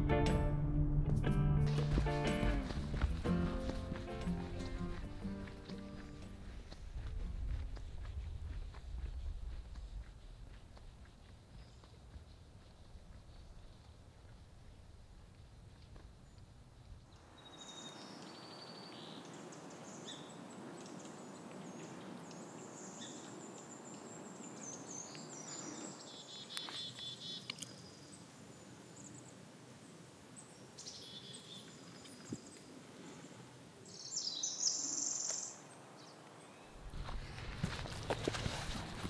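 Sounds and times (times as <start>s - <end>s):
songbirds chirping and trilling: 9.7s - 39.0s.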